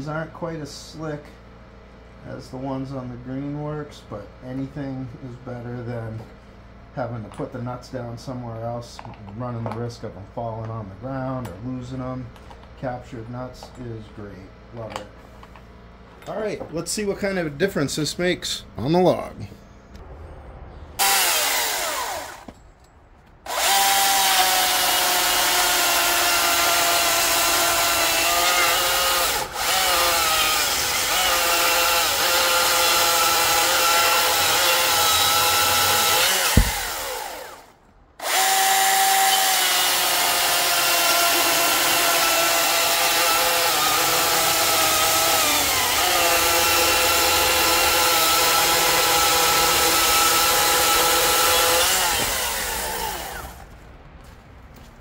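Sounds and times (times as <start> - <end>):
chainsaw cutting log: 21.0 - 22.6, 23.4 - 53.7
sharp thump: 36.4 - 37.2.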